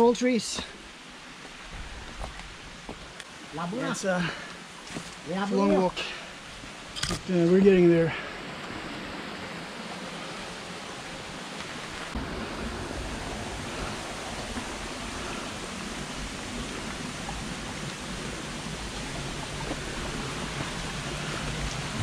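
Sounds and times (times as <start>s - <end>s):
water rushing over stones: 0.0s - 22.0s
low rumble: 12.1s - 22.0s.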